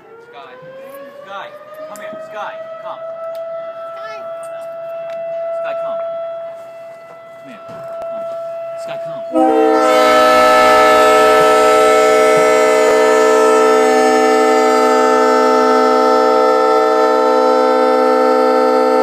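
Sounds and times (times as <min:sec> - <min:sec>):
locomotive air horn chord: 0:05.4 - 0:19.0.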